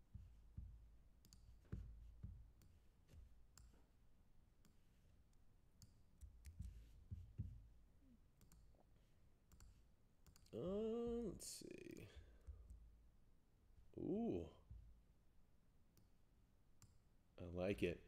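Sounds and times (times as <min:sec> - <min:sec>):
faint clicks and knocks at a desk: 0:00.0 - 0:04.0, 0:04.6 - 0:07.8, 0:08.4 - 0:10.6, 0:11.9 - 0:13.1.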